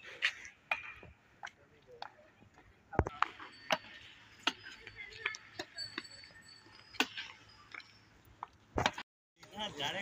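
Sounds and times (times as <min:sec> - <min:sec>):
rackets striking shuttlecock: 0:06.9 - 0:07.9.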